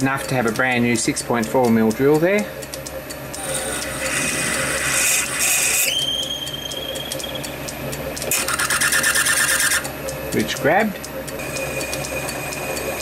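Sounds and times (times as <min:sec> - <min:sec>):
lathe humming: 0:00.0 - 0:13.0
drill cutting with squeal: 0:03.4 - 0:07.6, 0:08.3 - 0:09.9.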